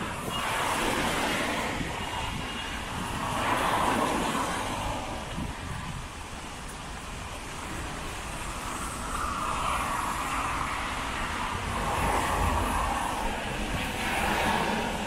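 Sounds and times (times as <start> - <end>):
low traffic rumble: 0.0 - 15.0
tyres hissing on wet road: 0.0 - 15.0.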